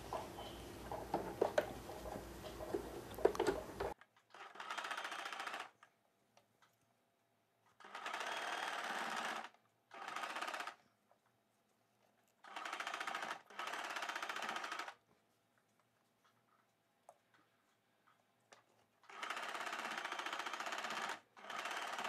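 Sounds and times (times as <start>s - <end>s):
sewing machine stitching: 3.3s - 5.7s, 7.8s - 10.8s, 12.4s - 15.0s, 19.1s - 22.0s.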